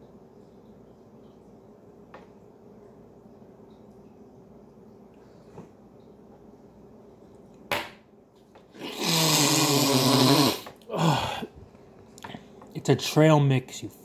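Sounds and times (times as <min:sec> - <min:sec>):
man groaning with closed mouth: 0:08.8 - 0:11.5.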